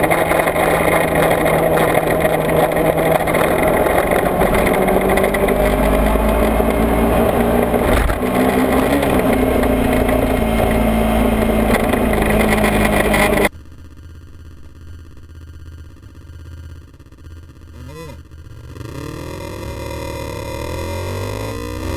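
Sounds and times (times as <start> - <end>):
motorcycle engine running: 0.0 - 21.9.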